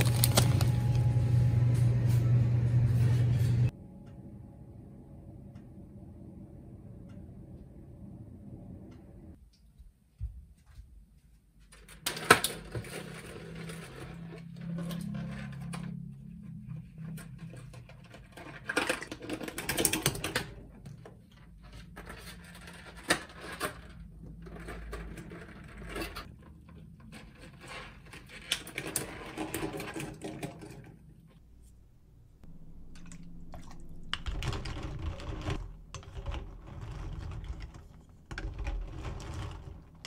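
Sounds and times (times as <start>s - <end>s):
eggs rattling in a steel pot: 32.4s - 40.0s.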